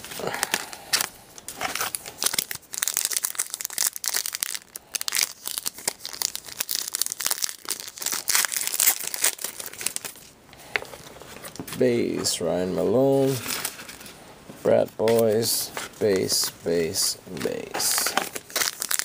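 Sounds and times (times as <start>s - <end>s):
foil wrapper crinkling: 0.1s - 10.3s, 17.4s - 19.0s.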